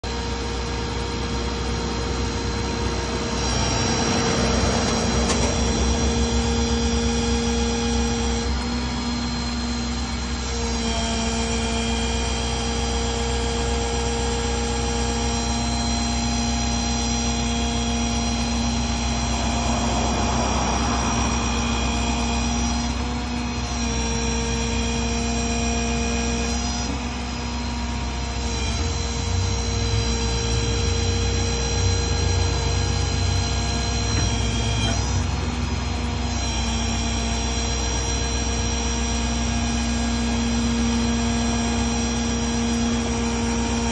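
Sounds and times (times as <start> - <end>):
truck engine running: 0.0 - 10.8, 11.5 - 36.4
hydraulic pump whine: 0.0 - 43.9.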